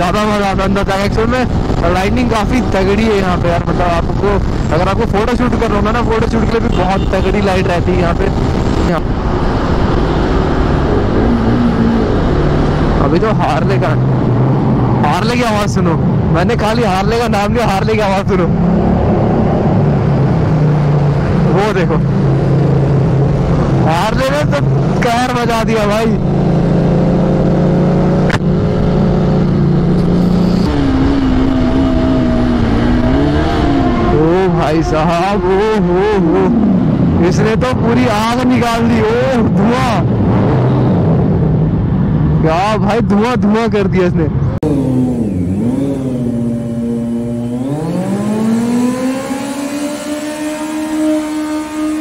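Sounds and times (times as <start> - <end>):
motorcycle engine revving high: 0.0 - 41.9, 44.6 - 52.0
motorcycle engine running: 44.6 - 49.6.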